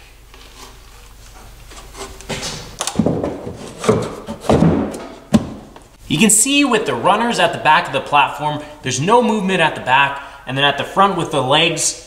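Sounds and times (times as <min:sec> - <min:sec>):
wooden thuds and knocks: 0:02.2 - 0:05.8.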